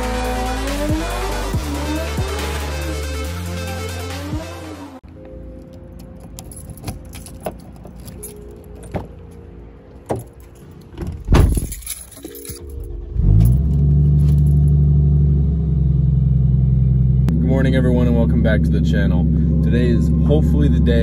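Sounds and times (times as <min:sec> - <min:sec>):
car engine starting and idling: 0:00.0 - 0:21.0
car keys jangling: 0:05.2 - 0:14.8
car door thud: 0:11.0 - 0:11.8.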